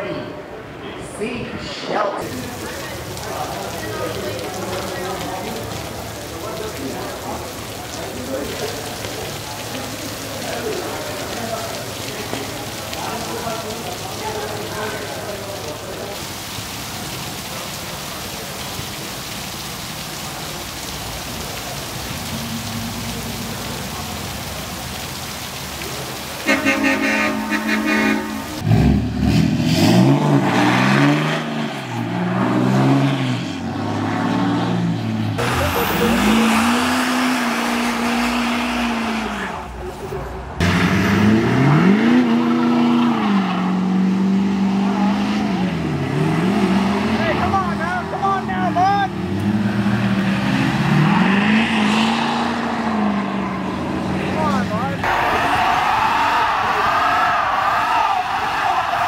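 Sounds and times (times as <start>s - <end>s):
heavy rain pouring: 2.0s - 59.0s
truck engine revving: 26.0s - 39.8s, 40.4s - 55.6s
loud horn blare: 26.4s - 28.7s.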